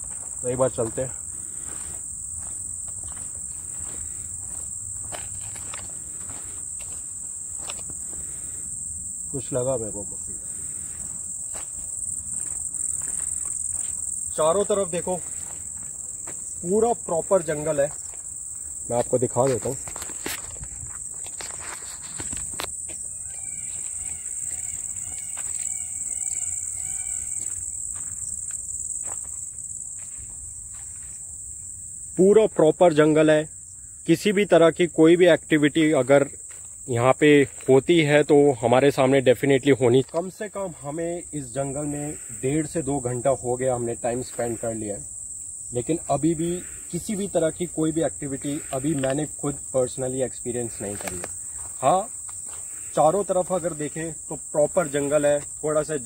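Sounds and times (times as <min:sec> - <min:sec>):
crickets chirring: 0:00.0 - 0:56.0.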